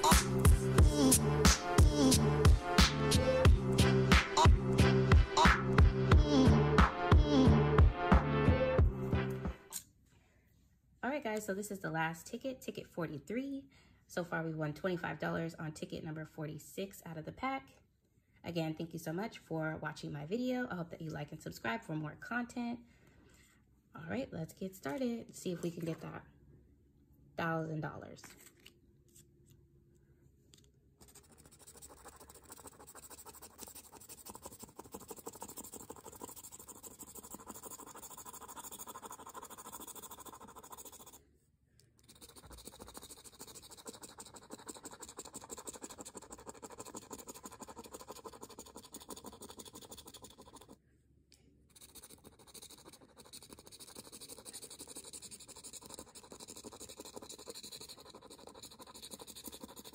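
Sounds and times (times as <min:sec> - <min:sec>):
scraping lottery ticket coating: 0:31.0 - 0:41.2, 0:42.0 - 0:50.8, 0:51.7 - 0:59.9.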